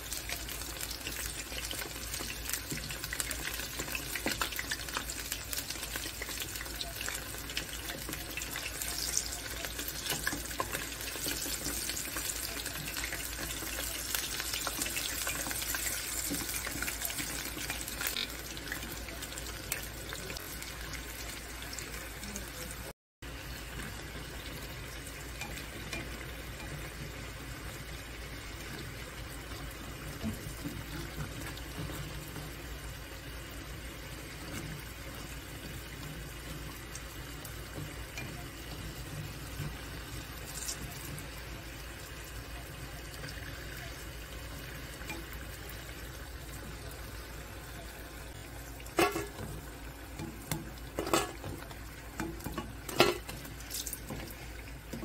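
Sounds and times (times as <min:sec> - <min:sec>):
deep-frying sizzle and bubble: 0:00.0 - 0:55.0.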